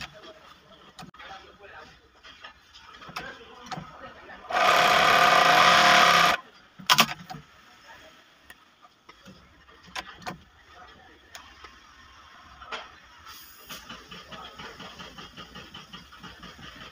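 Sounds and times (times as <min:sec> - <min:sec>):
sewing machine running: 0:04.5 - 0:06.4.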